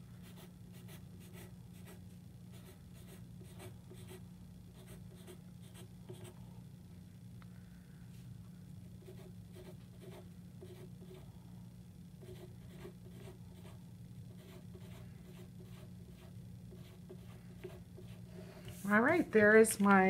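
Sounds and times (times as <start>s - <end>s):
pencil scratching on paper: 0.2s - 4.2s, 4.8s - 6.4s, 9.0s - 11.2s, 12.2s - 18.4s.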